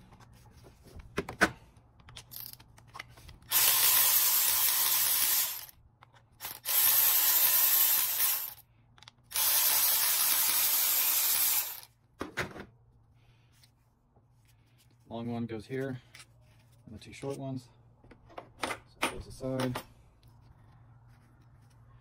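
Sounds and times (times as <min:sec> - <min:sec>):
electric ratchet spinning bolts: 0:03.5 - 0:05.7, 0:06.4 - 0:08.6, 0:09.3 - 0:11.9.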